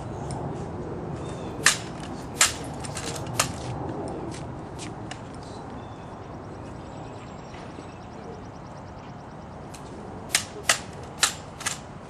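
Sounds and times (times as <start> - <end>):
hushed outdoor crowd: 0.0 - 12.0
rifle clicks: 1.6 - 3.7, 9.7 - 11.9.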